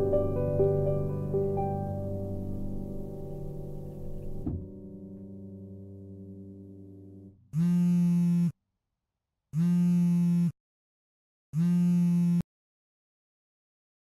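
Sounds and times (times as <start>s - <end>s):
electric buzzer: 7.5s - 8.6s, 9.6s - 10.6s, 11.6s - 12.5s.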